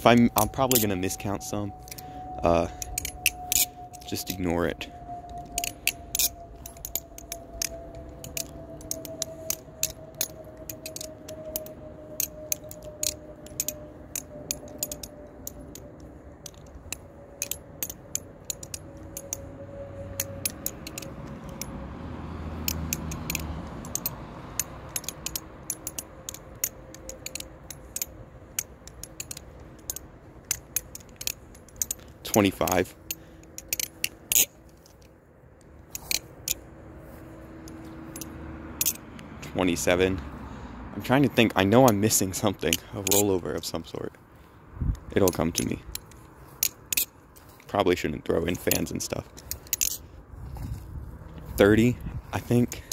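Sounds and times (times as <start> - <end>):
butterfly knife clicking: 0.3 - 4.4, 5.3 - 19.5, 20.1 - 21.7, 22.6 - 35.1.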